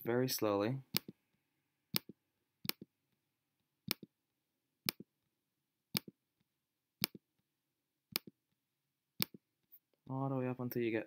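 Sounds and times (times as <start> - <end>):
computer mouse clicks: 0.9 - 1.2, 1.9 - 2.9, 3.8 - 4.1, 4.8 - 5.1, 5.9 - 6.2, 7.0 - 7.2, 8.1 - 8.4, 9.2 - 9.4.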